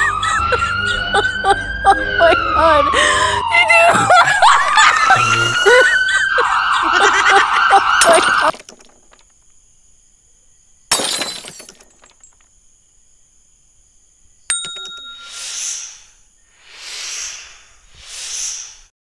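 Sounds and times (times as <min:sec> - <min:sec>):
sharp click with ringing: 0:14.5 - 0:15.4
whooshes: 0:16.6 - 0:18.9.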